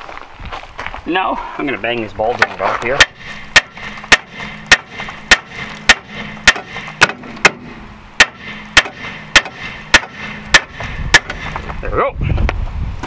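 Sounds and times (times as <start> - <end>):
hammer clanging on steel: 2.4 - 11.6.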